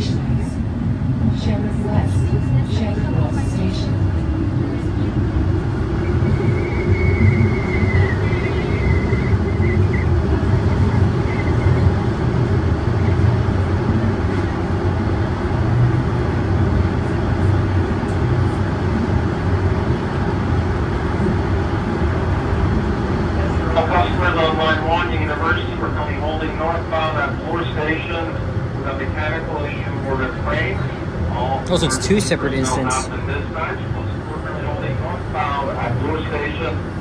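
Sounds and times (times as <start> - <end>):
subway train rumble: 0.0 - 37.0.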